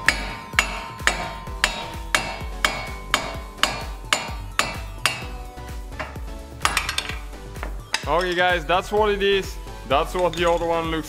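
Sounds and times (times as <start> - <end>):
hammer striking metal hub: 0.0 - 8.6.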